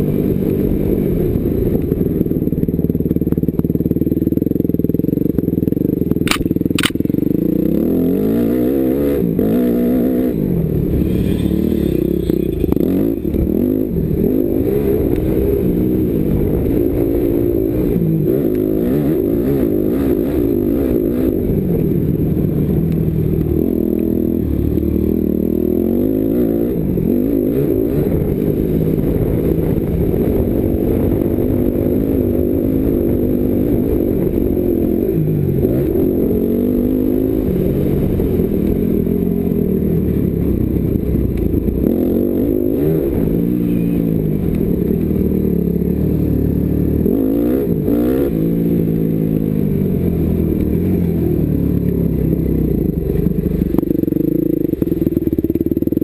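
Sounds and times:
sharp ticks: 6.2s - 7.1s.

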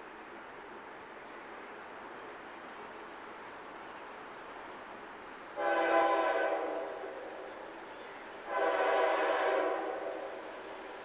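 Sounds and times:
locomotive air horn blasts: 5.6s - 7.0s, 8.5s - 10.4s.

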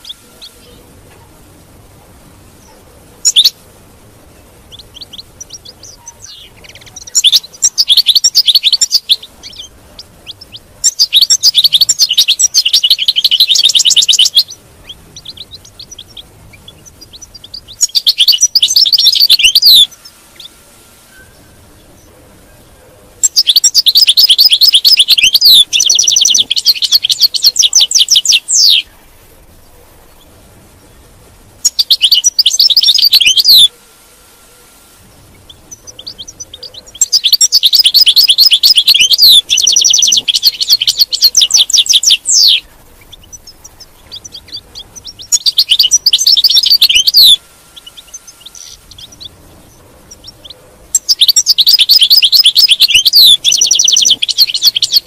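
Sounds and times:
goldfinch twittering trills: 3.2s - 3.6s, 4.7s - 20.5s, 23.2s - 28.9s, 31.6s - 33.7s, 35.3s - 55.0s.

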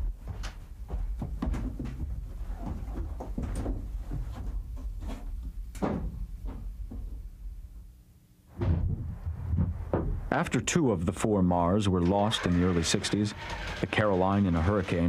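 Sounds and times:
low steady hum: 0.0s - 15.0s
knocks and clanks on metal ladder: 1.0s - 7.2s.

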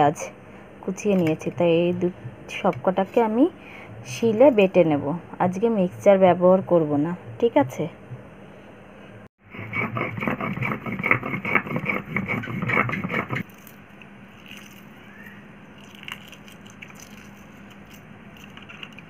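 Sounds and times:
stone scraping on stone: 9.6s - 13.4s.

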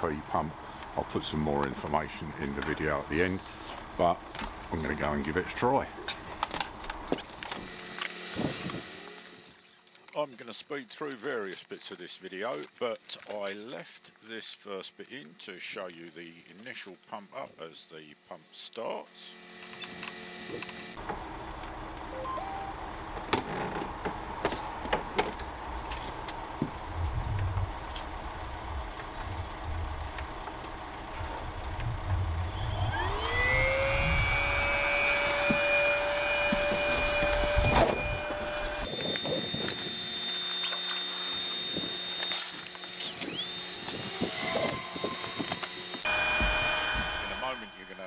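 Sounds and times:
air pump motor whining: 6.2s - 9.6s, 19.2s - 22.0s, 23.3s - 48.0s.

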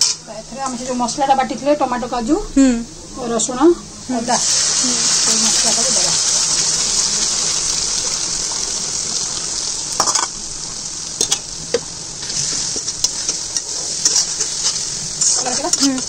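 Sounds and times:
masala sizzling in hot oil: 3.2s - 16.0s.

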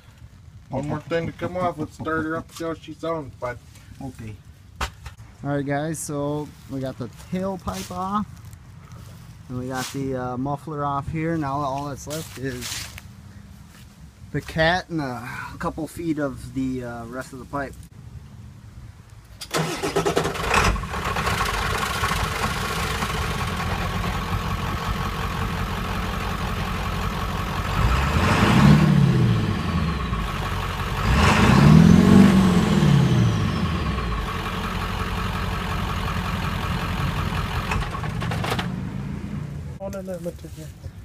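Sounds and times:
diesel engine idling and revving: 19.5s - 40.3s.

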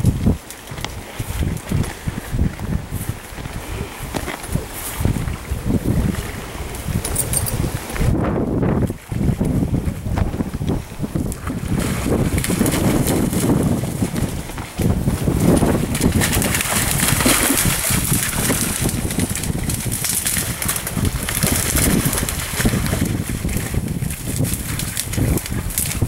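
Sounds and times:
grass rustling underfoot: 0.0s - 11.1s
wind buffeting microphone: 0.0s - 26.0s.

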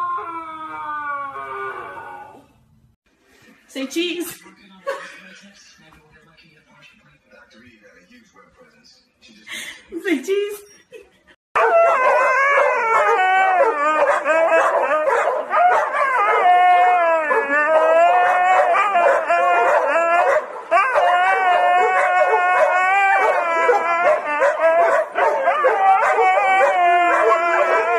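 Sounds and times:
husky howling: 0.0s - 2.6s, 11.6s - 27.9s.

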